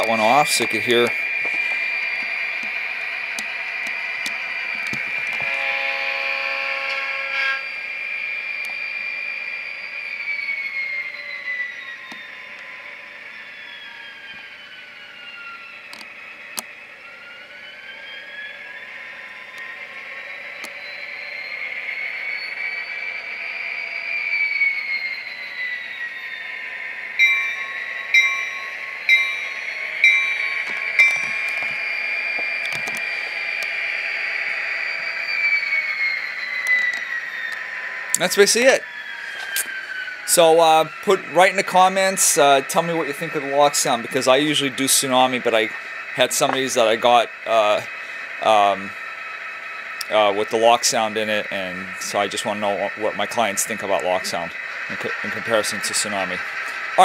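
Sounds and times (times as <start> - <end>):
diesel engine and turbo whine: 0.0 - 57.0
locomotive horn toots: 5.4 - 7.7.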